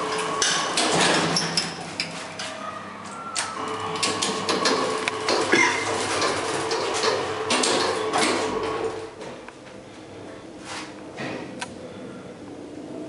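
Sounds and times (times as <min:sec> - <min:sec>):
lift door motor hum: 0:00.0 - 0:09.2.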